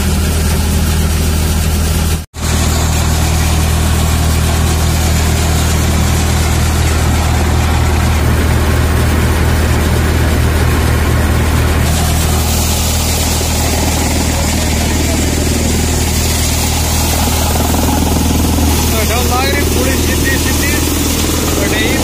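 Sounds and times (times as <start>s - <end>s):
tractor diesel engine drone: 0.0s - 22.0s
thresher clatter: 0.1s - 22.0s.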